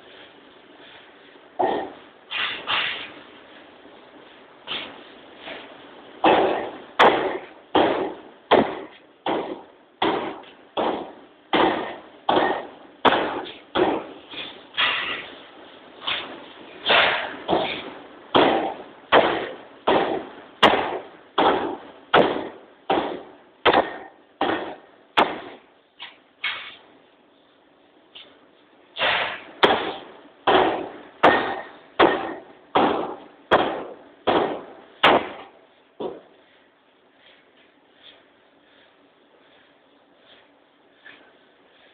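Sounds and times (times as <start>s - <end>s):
power hammer striking hot metal: 6.2s - 15.3s, 16.0s - 25.6s, 29.0s - 35.5s.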